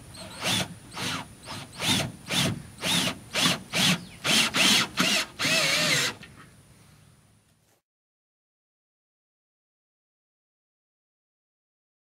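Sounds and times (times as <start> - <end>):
cordless drill motor whine: 0.2 - 6.2.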